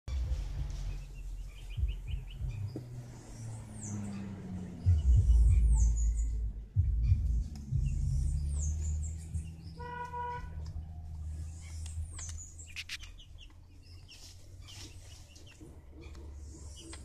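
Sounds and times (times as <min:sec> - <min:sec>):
bird chirping: 0:00.1 - 0:17.0
low rumbling on microphone: 0:04.7 - 0:09.8.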